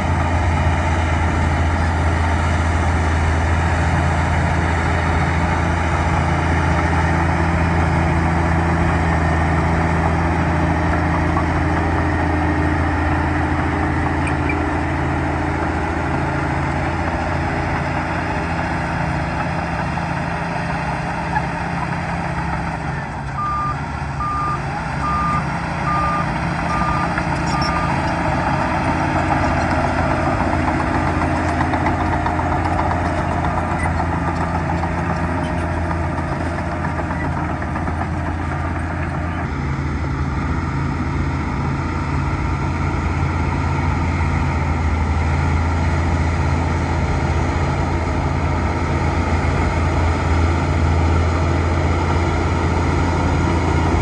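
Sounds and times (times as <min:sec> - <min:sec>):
bulldozer diesel engine droning: 0:00.0 - 0:54.0
reversing alarm beeping: 0:23.4 - 0:28.0.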